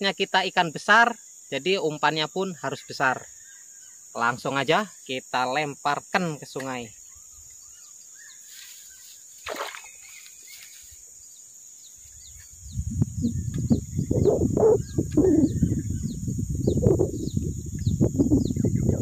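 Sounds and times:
high insect drone: 0:00.0 - 0:19.0
bird chirping: 0:07.0 - 0:19.0.

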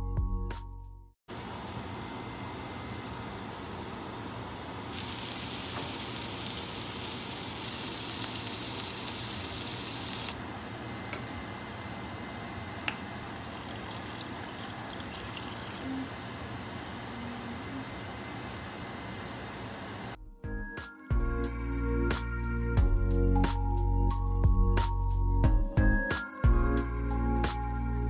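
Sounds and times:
pork sizzling in frying pan: 0:04.9 - 0:10.4
water splashing into saucepan: 0:13.2 - 0:15.8.

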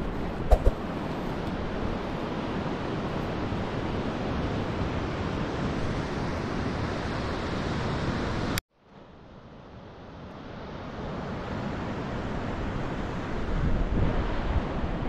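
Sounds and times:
wind buffeting microphone: 0:00.0 - 0:02.1.

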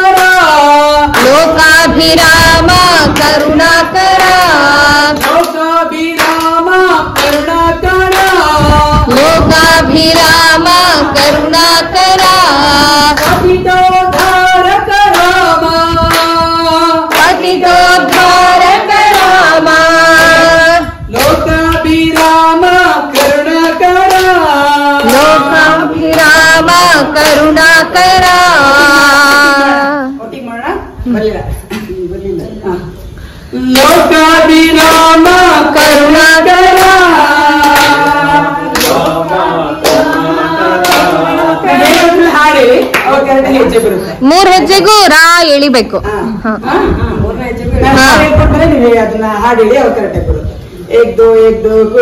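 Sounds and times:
group singing devotional song: 0:00.0 - 0:30.2, 0:32.7 - 0:45.3, 0:46.4 - 0:52.0
hand claps: 0:00.1 - 0:00.4, 0:01.1 - 0:01.5, 0:02.2 - 0:11.4, 0:12.2 - 0:20.5, 0:21.1 - 0:27.6, 0:33.7 - 0:34.1, 0:34.8 - 0:43.2.

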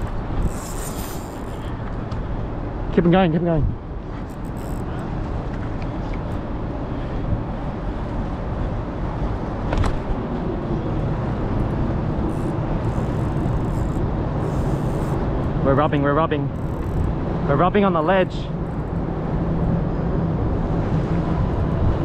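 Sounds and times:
distant traffic: 0:00.0 - 0:22.0
wind: 0:00.0 - 0:22.0.

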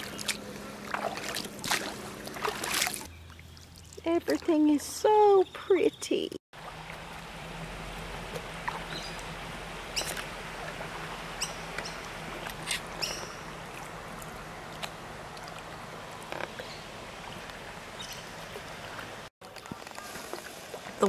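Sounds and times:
water wash from oars: 0:00.0 - 0:04.8, 0:06.6 - 0:21.0.

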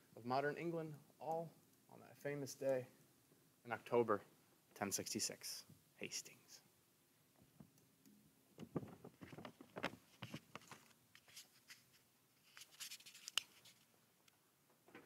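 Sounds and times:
microphone handling clicks and rustling: 0:08.6 - 0:13.8.

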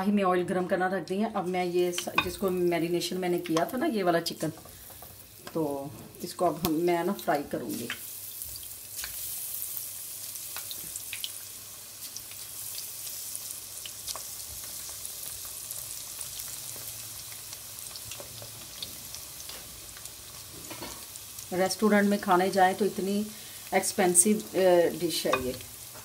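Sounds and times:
chicken deep-frying in oil: 0:04.7 - 0:26.0
oil crackles and pops: 0:07.8 - 0:21.5.

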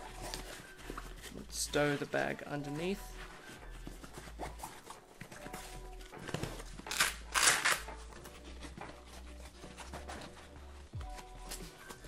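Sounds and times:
hands handling backpack straps: 0:00.0 - 0:12.0
velcro tearing: 0:06.8 - 0:08.1.

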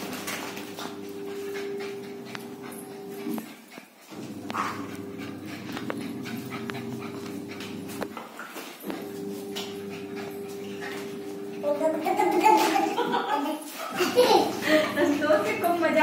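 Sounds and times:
paws ticking on hard floor: 0:00.0 - 0:13.0, 0:14.9 - 0:16.0
puppy panting and whimpering: 0:01.2 - 0:12.7.

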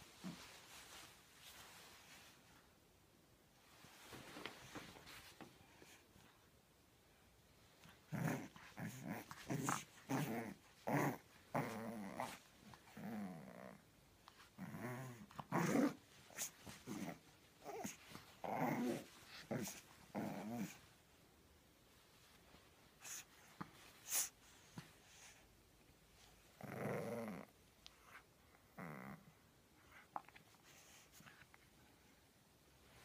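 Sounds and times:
puppy play growling: 0:07.6 - 0:21.0, 0:26.2 - 0:31.6.

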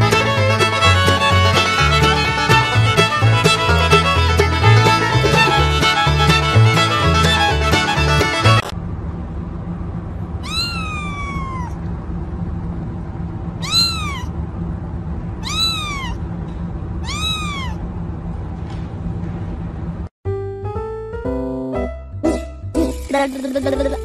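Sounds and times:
kitten meowing: 0:10.4 - 0:11.8, 0:13.6 - 0:14.4, 0:15.4 - 0:16.2, 0:17.0 - 0:17.8.

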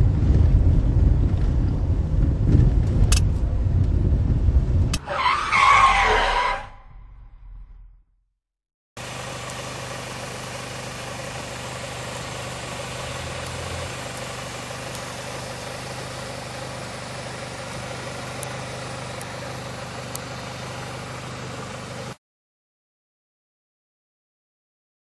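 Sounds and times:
car engine idling: 0:09.0 - 0:22.2.

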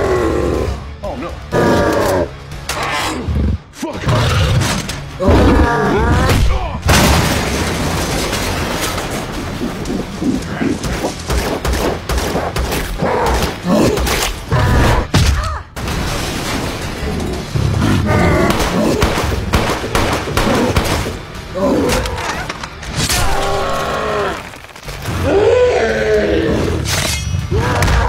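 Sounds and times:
rapid gunfire: 0:18.5 - 0:21.2.

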